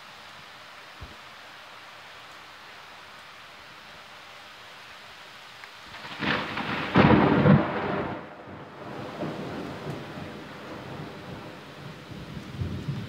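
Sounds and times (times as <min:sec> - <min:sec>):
steady rain: 0:00.0 - 0:13.0
thunder clap and rumble: 0:05.9 - 0:13.0.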